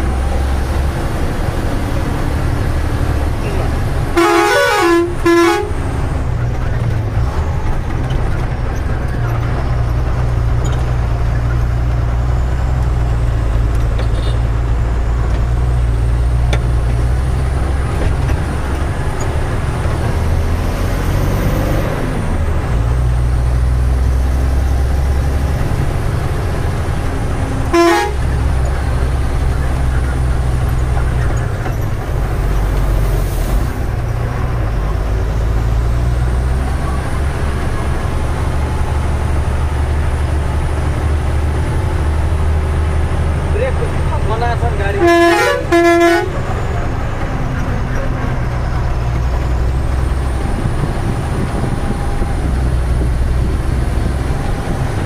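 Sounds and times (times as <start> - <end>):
truck diesel engine droning: 0.0 - 55.0
short horn toot: 4.2 - 5.8, 27.7 - 28.3, 45.0 - 46.4.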